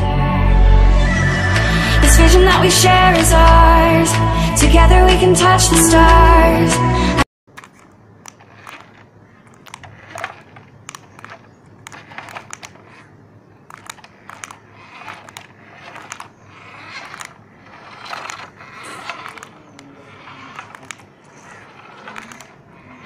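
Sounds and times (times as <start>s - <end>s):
plastic toy truck rattling: 7.5s - 23.0s
rustling: 7.5s - 23.0s.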